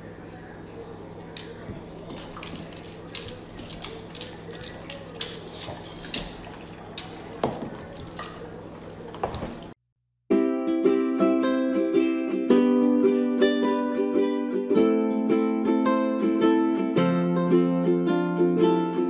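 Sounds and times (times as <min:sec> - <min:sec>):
dog claws clicking on wood floor: 0:01.2 - 0:09.7.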